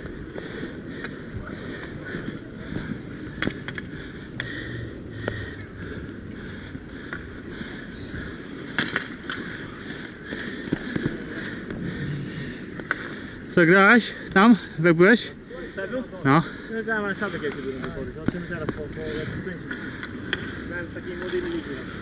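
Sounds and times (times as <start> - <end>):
skate wheels rolling: 0.0 - 14.6, 16.8 - 22.0
hockey sticks clacking: 8.7 - 9.4, 19.6 - 21.8.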